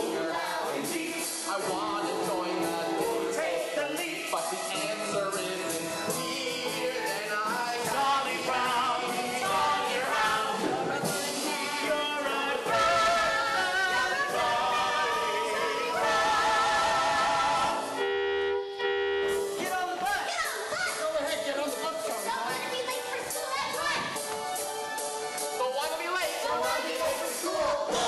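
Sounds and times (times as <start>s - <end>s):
cast singing together: 0.0s - 18.1s, 26.4s - 28.0s
instrumental accompaniment: 19.2s - 28.0s.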